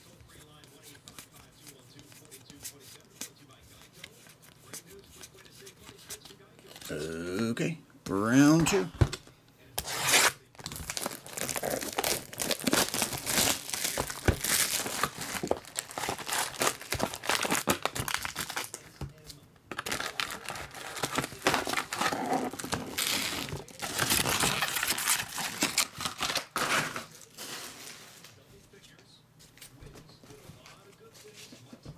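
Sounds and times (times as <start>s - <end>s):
plastic shrink wrap tearing: 9.8s - 18.9s, 19.7s - 28.0s
foil packs crinkling: 9.8s - 19.0s, 19.7s - 28.3s.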